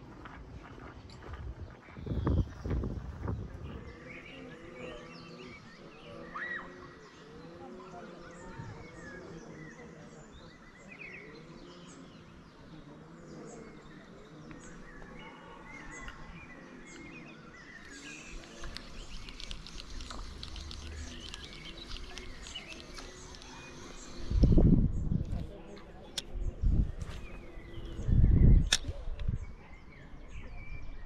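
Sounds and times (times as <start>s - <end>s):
birds singing and chirping: 1.0s - 31.0s
crackling rustling noise: 17.8s - 26.3s.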